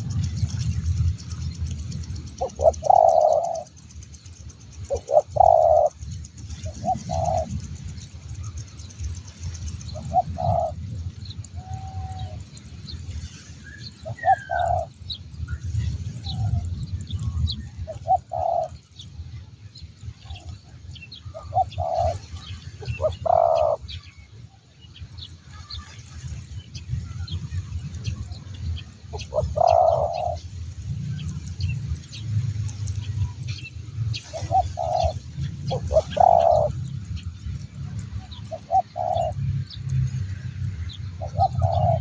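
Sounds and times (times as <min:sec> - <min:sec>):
small birds chirping: 0:00.0 - 0:42.0
doves cooing: 0:02.4 - 0:03.8, 0:04.8 - 0:07.7, 0:09.9 - 0:10.9, 0:14.0 - 0:15.0, 0:15.9 - 0:18.9, 0:20.2 - 0:24.0, 0:29.1 - 0:30.5, 0:34.2 - 0:36.9, 0:38.2 - 0:39.5, 0:41.2 - 0:42.0.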